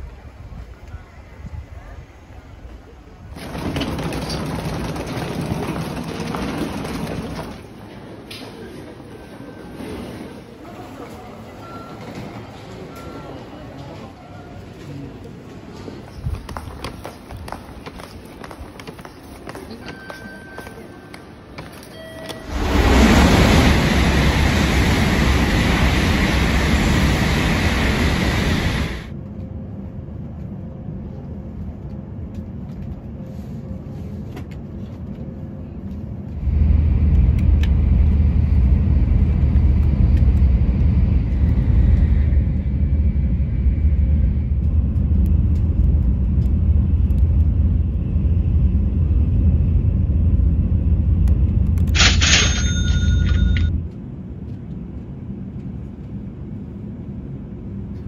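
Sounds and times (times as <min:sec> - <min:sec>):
train running low rumble: 0:00.0 - 0:58.0
train rushing roar: 0:03.1 - 0:08.2, 0:22.4 - 0:31.0, 0:36.3 - 0:53.8.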